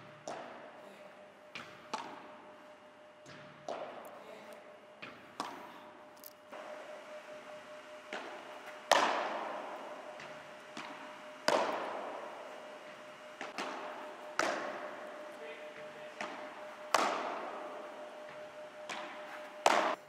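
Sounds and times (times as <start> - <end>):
faint steady hum: 0.0 - 20.0
padel ball hits echoing: 8.1 - 20.0.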